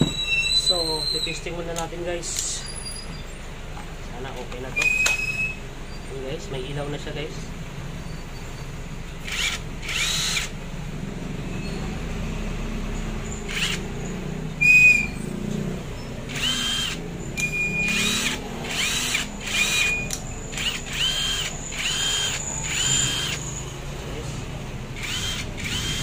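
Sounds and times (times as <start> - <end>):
impact driver whining: 0.0 - 0.6, 4.6 - 5.6, 9.2 - 10.6, 13.2 - 15.2, 16.2 - 23.5, 24.9 - 26.0.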